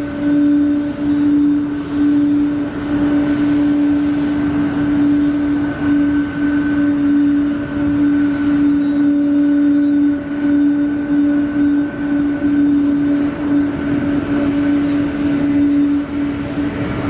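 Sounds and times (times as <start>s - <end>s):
jet engines idling: 0.0s - 17.0s.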